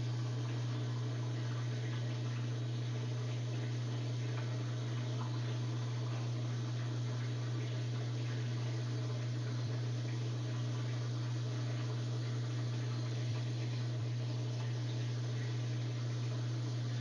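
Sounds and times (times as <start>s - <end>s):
washing machine drain pump humming: 0.0s - 17.0s
water gurgling: 0.0s - 17.0s.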